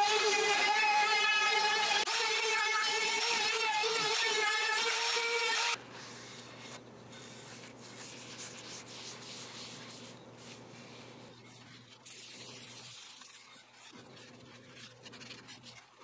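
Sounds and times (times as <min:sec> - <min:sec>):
faint rubbing on wood: 0:06.0 - 0:15.9.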